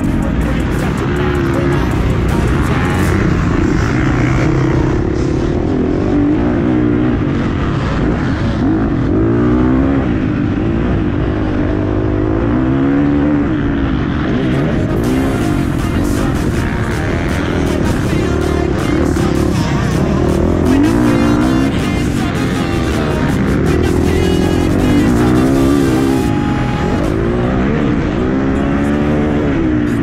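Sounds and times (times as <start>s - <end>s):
motocross bike engine revving: 0.0s - 30.0s.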